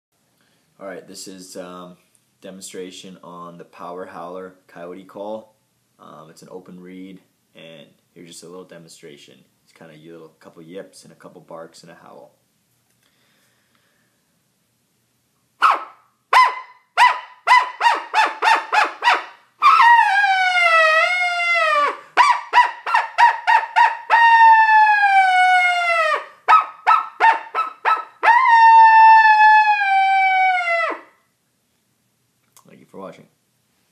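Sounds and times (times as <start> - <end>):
coyote call howls: 15.6 - 31.2
coyote call yips and barks: 15.6 - 31.2.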